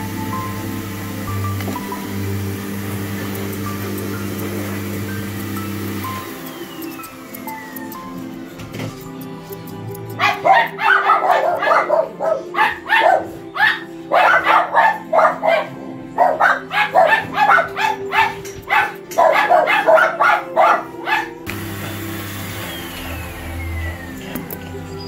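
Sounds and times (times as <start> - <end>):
background music: 0.0 - 25.0
dog barking: 10.2 - 21.4.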